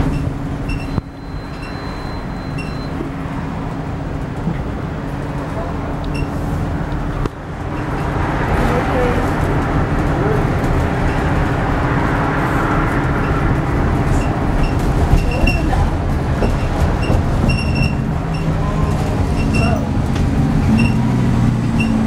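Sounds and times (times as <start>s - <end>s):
short high squeaks: 0.0s - 3.0s, 17.0s - 19.8s, 20.7s - 21.0s, 21.8s - 22.0s
bus diesel engine: 0.0s - 22.0s
road rumble: 0.0s - 22.0s.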